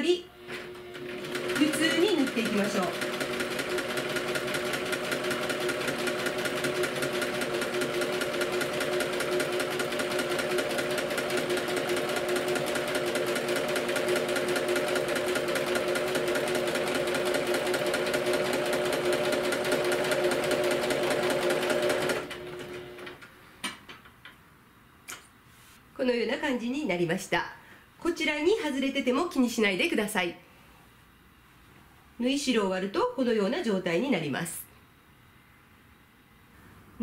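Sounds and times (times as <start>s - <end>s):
electric sewing machine running: 0.5s - 23.2s.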